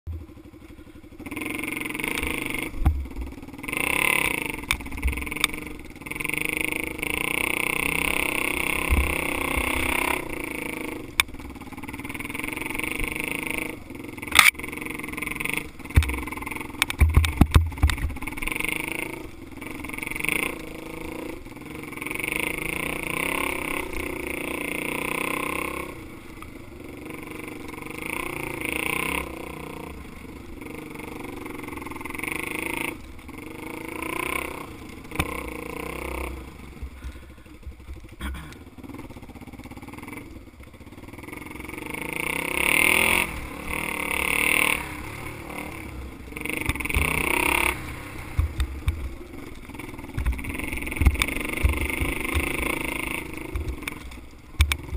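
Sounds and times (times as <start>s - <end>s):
dirt bike engine revving: 0.1s - 54.9s
bike knocking over bumps: 15.9s - 18.4s, 48.3s - 49.2s, 50.1s - 52.8s.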